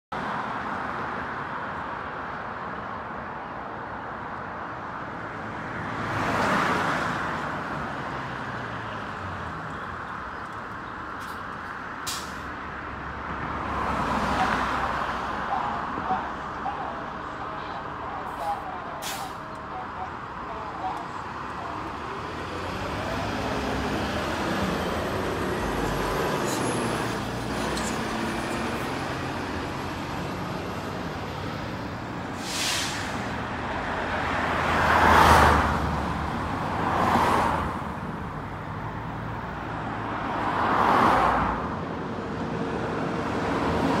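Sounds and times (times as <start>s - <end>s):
road traffic: 0.1s - 44.0s
vehicles passing close by: 0.1s - 44.0s
bus engine pulling away: 5.2s - 36.8s.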